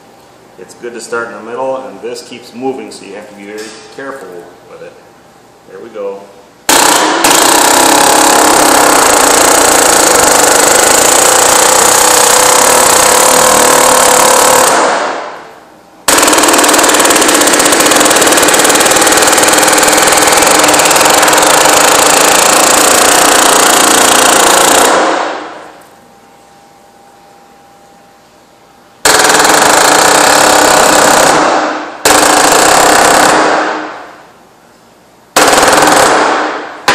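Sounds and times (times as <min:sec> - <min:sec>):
pneumatic air hammer: 0:06.7 - 0:15.4, 0:16.1 - 0:25.6, 0:29.1 - 0:34.0.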